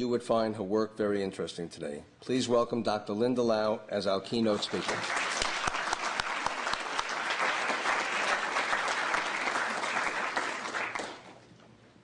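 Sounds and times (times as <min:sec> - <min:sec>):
audience applauding: 0:04.5 - 0:11.4.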